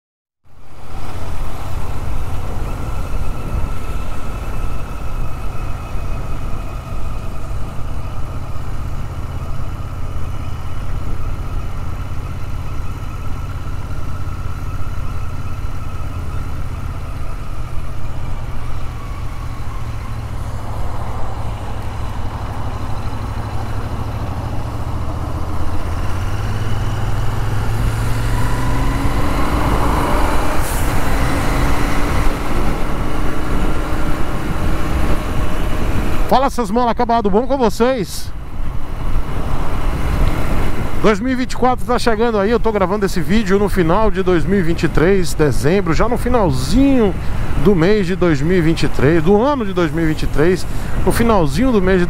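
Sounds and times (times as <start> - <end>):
road and wind noise: 0.4 - 52.0
surrounding traffic: 0.4 - 52.0
motorcycle engine running: 0.8 - 36.4.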